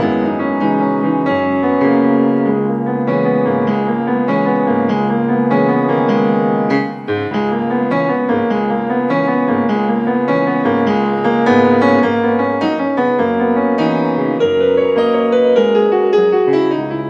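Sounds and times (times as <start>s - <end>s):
gentle piano piece: 0.0s - 17.0s.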